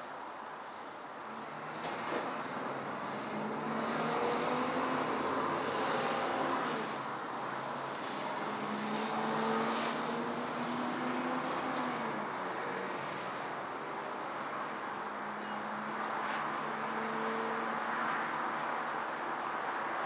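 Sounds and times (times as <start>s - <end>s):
city road traffic: 0.0s - 20.0s.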